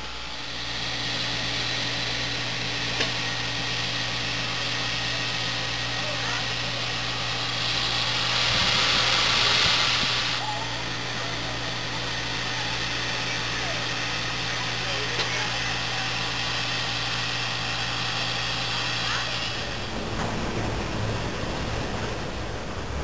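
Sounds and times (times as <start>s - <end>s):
steam hissing: 0.0s - 22.8s
low regular pulsing: 0.0s - 23.0s
low hum: 19.1s - 23.0s.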